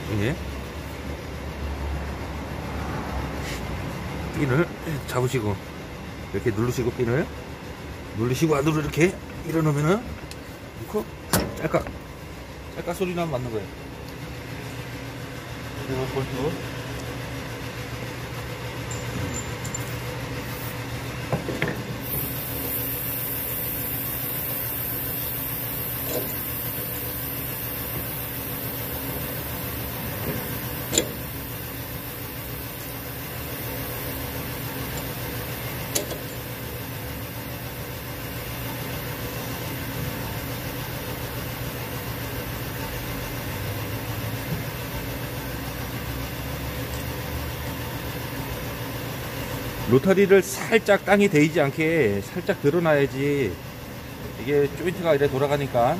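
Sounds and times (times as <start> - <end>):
tractor diesel engine idling: 22.0 - 46.9.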